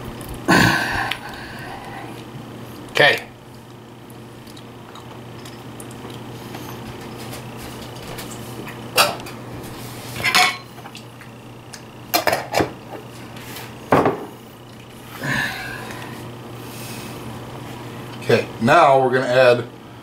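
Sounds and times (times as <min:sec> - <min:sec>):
kitchenware clinking and clattering: 0:10.2 - 0:10.8, 0:12.1 - 0:12.8.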